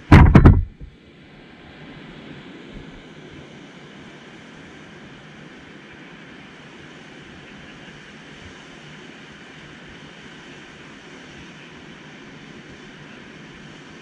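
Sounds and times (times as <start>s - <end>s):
wind on microphone: 0.0s - 0.9s.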